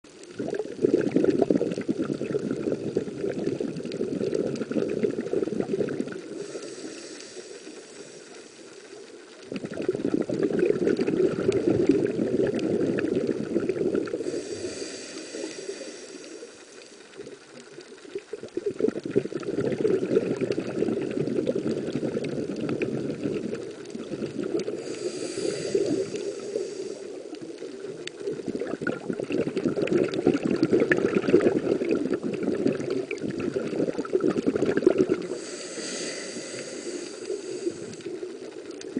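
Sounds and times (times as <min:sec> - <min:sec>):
bubbling exhale underwater: 0:00.1 - 0:08.2, 0:09.0 - 0:16.6, 0:17.2 - 0:38.9
hissing inhale through regulator: 0:01.0 - 0:09.8, 0:10.9 - 0:17.4, 0:21.8 - 0:28.6, 0:34.7 - 0:38.9.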